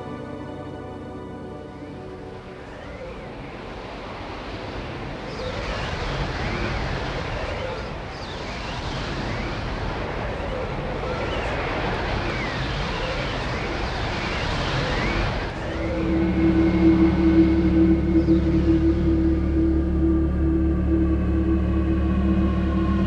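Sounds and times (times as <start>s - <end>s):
low droning music chord: 0.0s - 2.7s, 15.7s - 23.0s
strong wind roaring: 2.0s - 23.0s.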